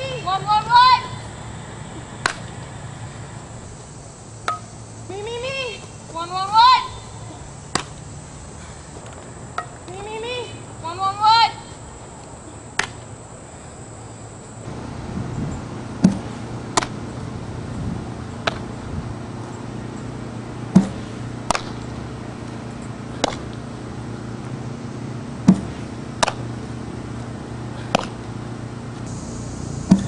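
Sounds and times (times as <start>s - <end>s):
bat hitting ball: 2.2s - 2.6s, 4.4s - 4.8s, 7.7s - 8.0s, 9.1s - 9.9s, 15.8s - 17.0s, 20.7s - 22.0s, 23.2s - 23.5s, 25.4s - 26.6s, 27.9s - 28.2s.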